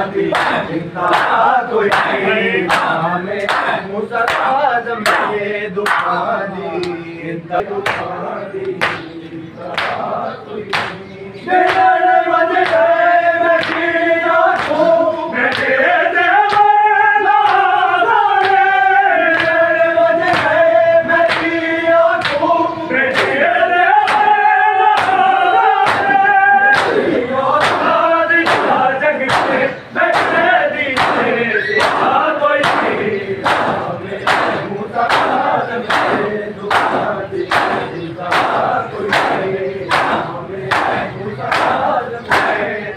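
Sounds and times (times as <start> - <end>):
crowd shouting: 0.0 - 6.2, 11.5 - 42.9
male chorus singing: 0.0 - 42.9
hands slapping chests: 0.3 - 6.2, 7.8 - 9.1, 9.7 - 10.1, 10.7 - 11.0, 12.6 - 13.0, 13.6 - 13.9, 14.5 - 15.7, 21.3 - 21.6, 22.2 - 22.5, 25.8 - 26.2, 26.8 - 42.7.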